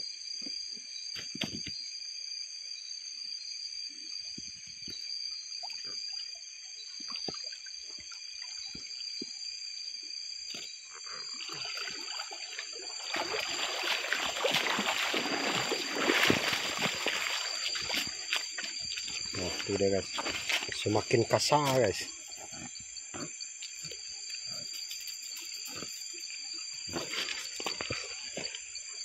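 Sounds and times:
water streaming and splashing: 0:10.5 - 0:22.2
water trickling and dripping: 0:11.2 - 0:21.2.

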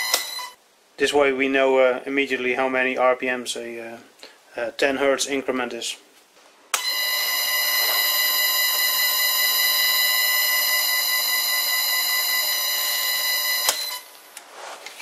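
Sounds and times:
lathe motor electrical whine: 0:06.8 - 0:14.1.

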